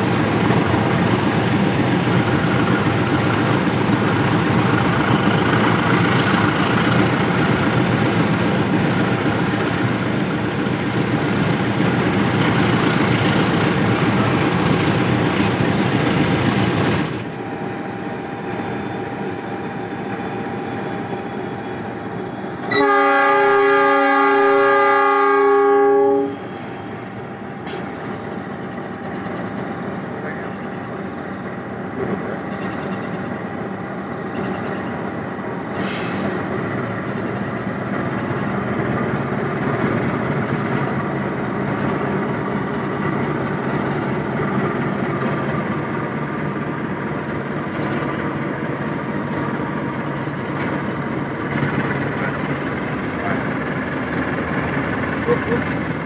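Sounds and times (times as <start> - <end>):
diesel locomotive engine running: 0.0 - 56.0
locomotive air horn blast: 22.6 - 26.8.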